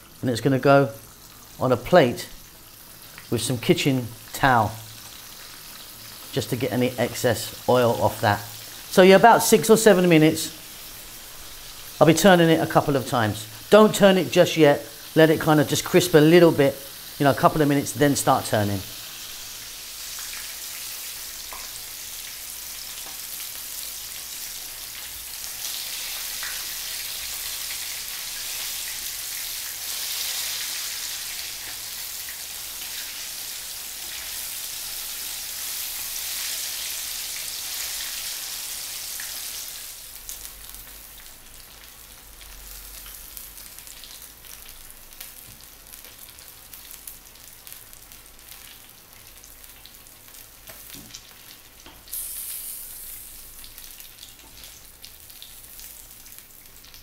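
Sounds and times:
fish sizzling in hot oil: 0:00.9 - 0:57.0
oil popping and crackling: 0:19.1 - 0:57.0.

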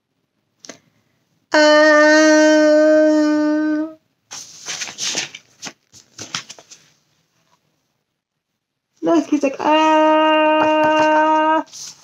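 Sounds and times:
paper page flipping: 0:04.3 - 0:07.0, 0:09.8 - 0:12.0.

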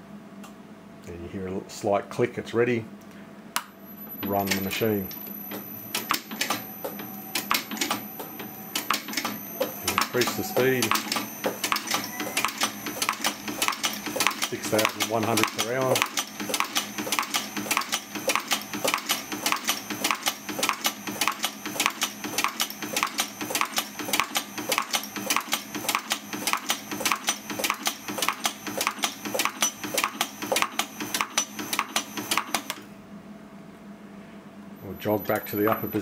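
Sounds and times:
faint steady hum: 0:00.0 - 0:21.2
machine clacking rhythmically: 0:05.4 - 0:32.6.

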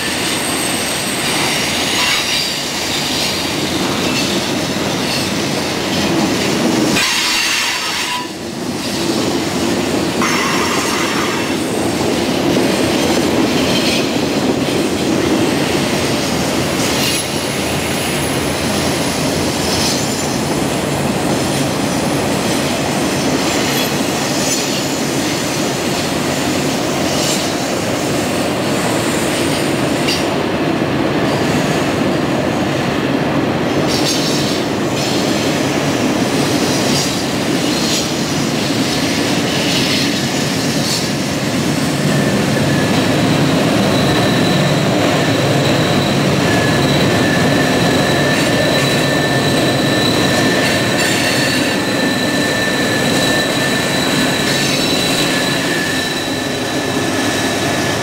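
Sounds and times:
high wheel squeals: 0:00.0 - 0:05.4, 0:39.3 - 0:58.0
train wheels rumbling on rail: 0:00.0 - 0:58.0.

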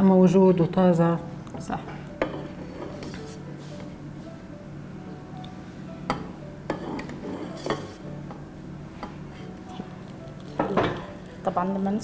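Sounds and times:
faint steady hum: 0:00.0 - 0:12.0
metal ladle scraping a pot: 0:02.3 - 0:03.4, 0:06.7 - 0:08.1.

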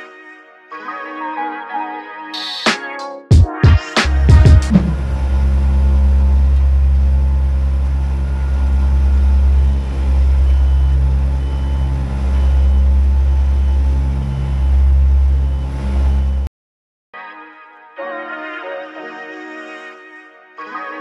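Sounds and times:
compaction roller rumble: 0:04.1 - 0:16.4
faint high beep: 0:10.4 - 0:12.9.

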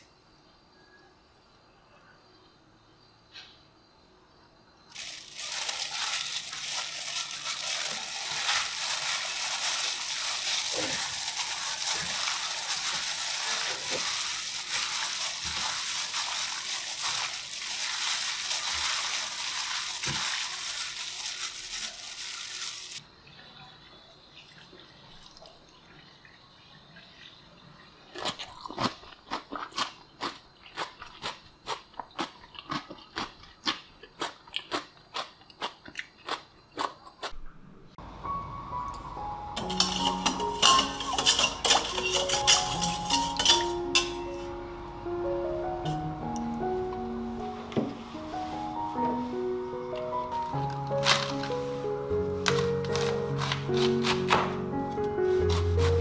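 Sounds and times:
crunching raw vegetables: 0:04.9 - 0:23.0, 0:28.1 - 0:37.4, 0:52.3 - 0:56.0
glove tossing wet salad rustle: 0:04.9 - 0:23.0, 0:39.6 - 0:44.4, 0:47.4 - 0:49.4, 0:55.2 - 0:56.0.

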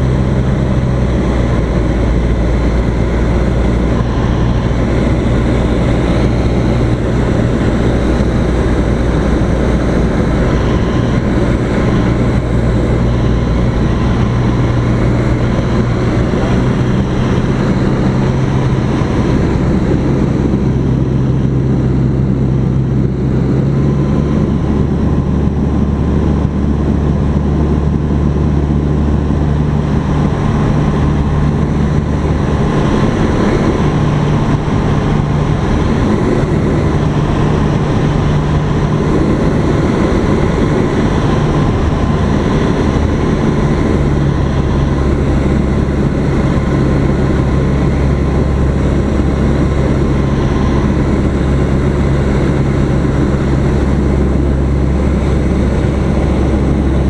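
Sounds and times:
airplane engine droning in cabin: 0:00.0 - 0:57.0.

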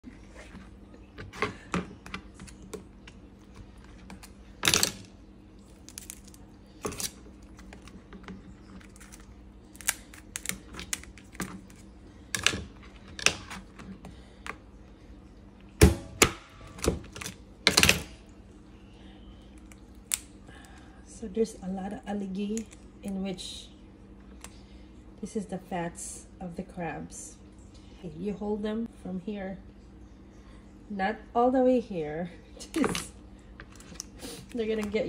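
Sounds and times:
crab shell cracking: 0:04.0 - 0:12.5, 0:19.6 - 0:20.8
scissors snipping crab shell: 0:08.8 - 0:11.8.

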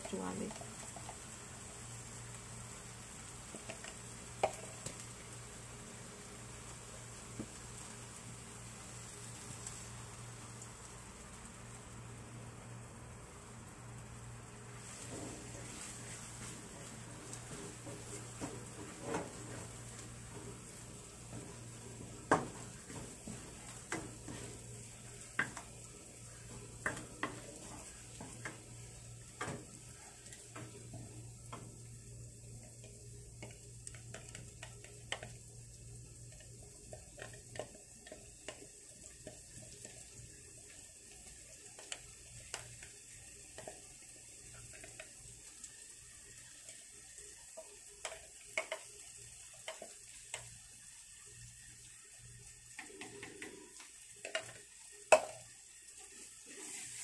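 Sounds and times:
faint sizzle of frying: 0:00.0 - 0:57.0
spatula scraping and tapping wok: 0:03.5 - 0:05.0, 0:14.8 - 0:31.8, 0:36.3 - 0:40.2, 0:43.5 - 0:43.9, 0:47.5 - 0:50.5, 0:52.7 - 0:55.5.

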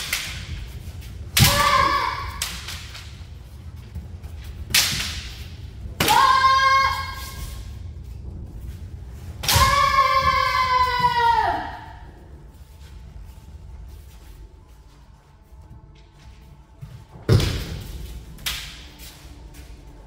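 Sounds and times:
women shouting: 0:01.4 - 0:02.4, 0:06.0 - 0:07.4, 0:09.5 - 0:12.1
bamboo sword strikes: 0:01.4 - 0:03.0, 0:04.7 - 0:05.4, 0:09.4 - 0:10.0.

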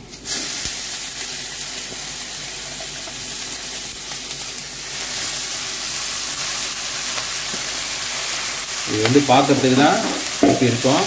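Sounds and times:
hot oil sizzling in a pan: 0:00.0 - 0:11.0.

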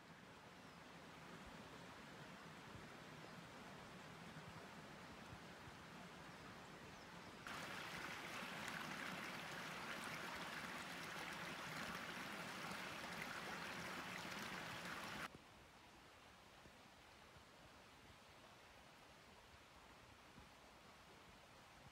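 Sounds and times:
stream running over rocks: 0:00.1 - 0:15.3.

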